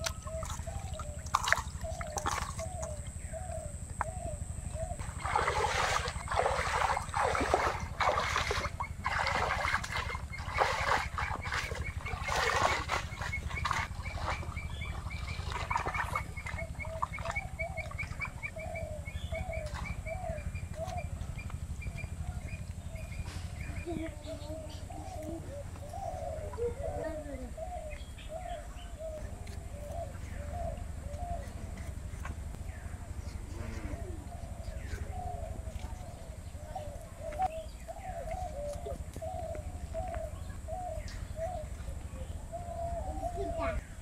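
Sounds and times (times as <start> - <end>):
water splashing and sloshing: 0.0 - 3.1, 5.0 - 18.7
bird calling: 0.0 - 44.0.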